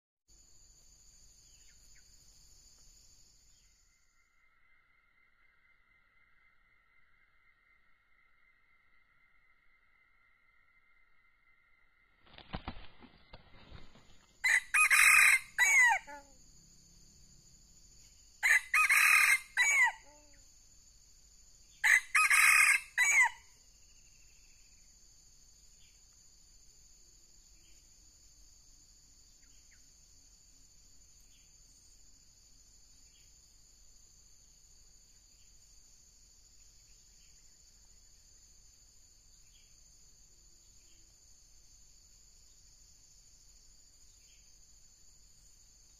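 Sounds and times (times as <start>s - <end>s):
faint insect ticks: 0.3s - 11.0s, 23.6s - 45.9s
rooster crowing: 14.4s - 16.4s, 18.4s - 20.4s, 21.8s - 23.5s.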